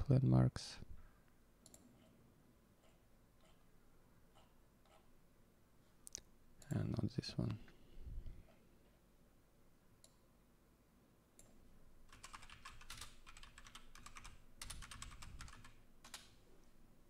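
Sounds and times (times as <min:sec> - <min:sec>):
keyboard typing: 0:12.1 - 0:16.3.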